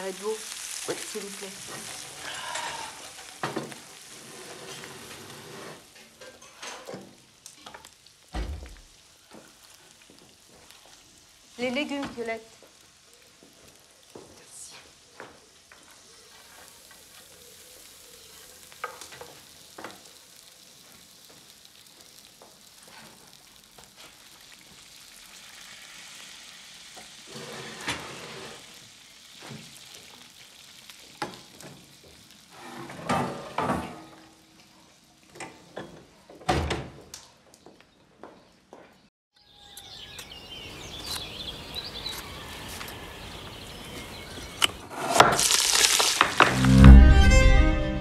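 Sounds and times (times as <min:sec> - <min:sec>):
meat sizzling in roasting dish: 0:00.0 - 0:32.8, 0:45.4 - 0:46.8.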